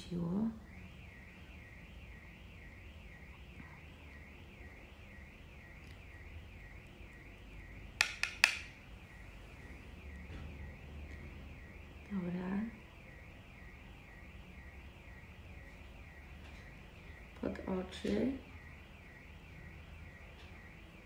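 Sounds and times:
sharp clicks: 8.0s - 8.7s.

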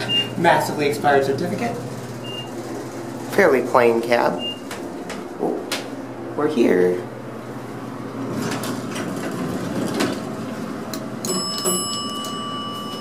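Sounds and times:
elevator chime ding: 0.0s - 0.3s, 11.2s - 13.0s.

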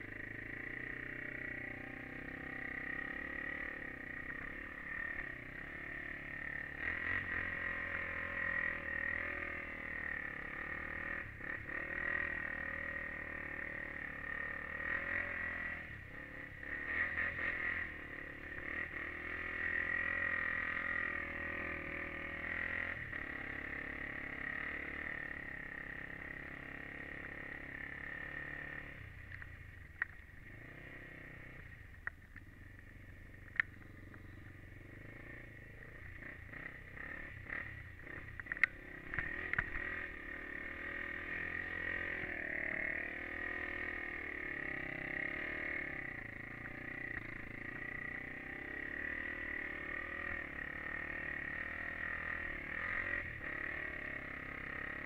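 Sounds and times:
quad engine running: 0.0s - 55.0s
sharp clicks: 32.0s - 34.5s.

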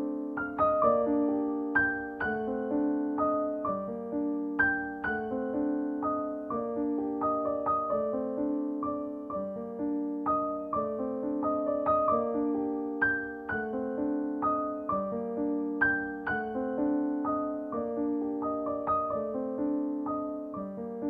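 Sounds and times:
gentle piano melody: 0.0s - 21.0s.

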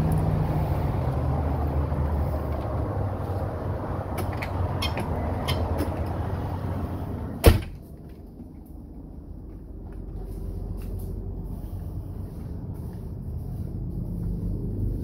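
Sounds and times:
steady rumbling background: 0.0s - 15.0s
door shutting thump: 7.4s - 7.8s.

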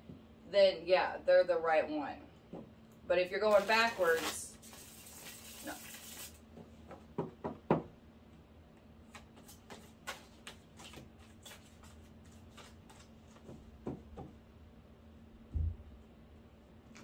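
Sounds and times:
cards being shuffled: 3.5s - 6.4s, 9.1s - 13.4s.

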